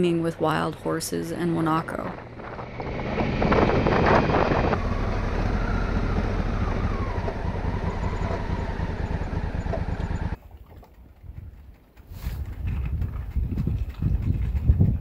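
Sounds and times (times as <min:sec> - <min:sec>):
motorcycle engine running: 0:01.7 - 0:10.4
rushing noise: 0:02.0 - 0:09.6.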